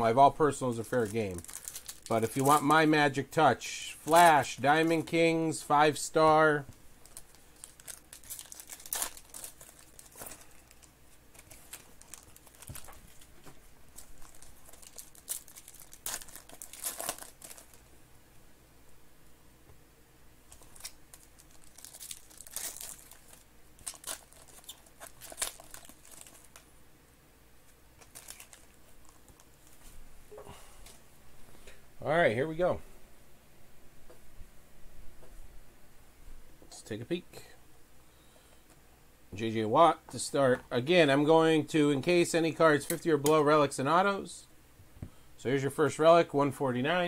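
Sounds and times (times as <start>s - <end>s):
foil wrappers crinkling and tearing: 0.8s - 2.9s, 3.9s - 5.1s, 7.0s - 17.9s, 20.5s - 26.6s, 28.0s - 29.8s.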